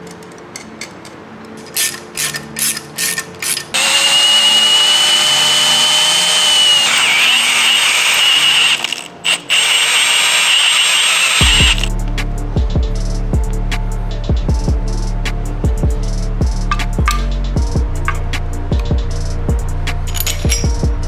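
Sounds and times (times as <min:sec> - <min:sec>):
ratcheting clicks: 0:00.1 - 0:11.9, 0:20.1 - 0:20.8
cordless drill whining: 0:03.4 - 0:11.9.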